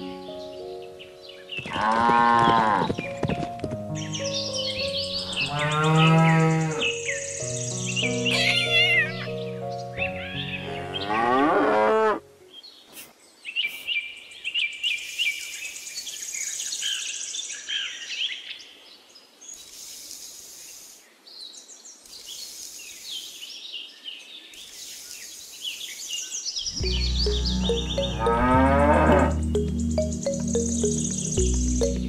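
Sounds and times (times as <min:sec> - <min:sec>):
birds chirping: 0:00.0 - 0:11.5, 0:19.5 - 0:32.0
cow mooing: 0:01.7 - 0:02.9, 0:05.4 - 0:06.9, 0:10.8 - 0:12.2, 0:26.9 - 0:29.4.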